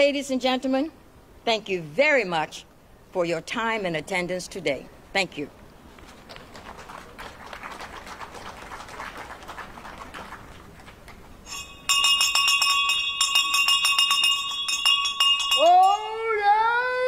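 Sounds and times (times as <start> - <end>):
scattered applause: 6.3 - 11.2
bell ringing rapidly: 11.5 - 16.3.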